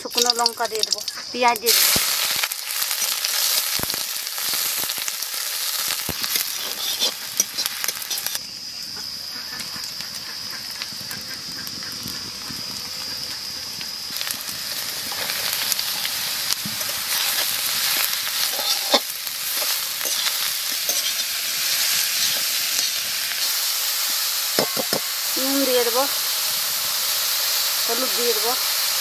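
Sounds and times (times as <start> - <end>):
food sizzling in oil: 0.0 - 29.0
spoon scraping and tapping pan: 6.3 - 8.4, 16.6 - 21.3, 24.1 - 25.1.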